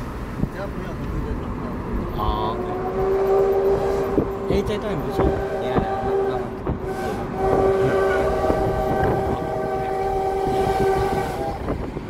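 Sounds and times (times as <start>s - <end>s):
low rumble of moving car: 0.0s - 12.0s
train horn blast: 2.5s - 11.9s.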